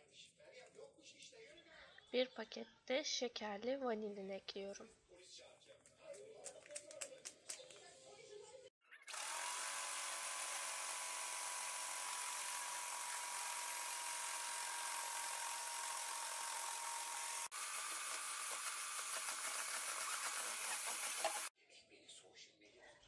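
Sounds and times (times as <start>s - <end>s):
electric hand mixer whining: 9.0s - 21.5s.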